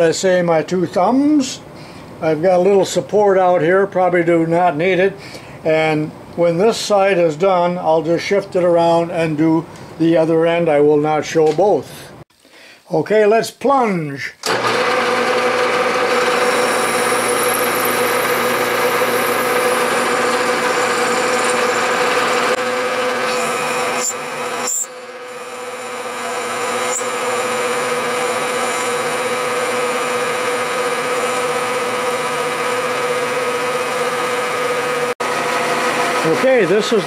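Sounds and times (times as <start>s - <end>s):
milling machine cutting steel: 14.4s - 37.0s.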